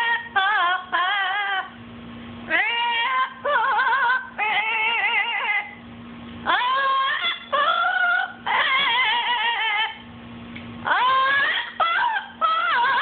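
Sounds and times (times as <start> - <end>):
parrot singing with vibrato: 0.0 - 1.8, 2.5 - 5.8, 6.4 - 10.0, 10.8 - 13.0.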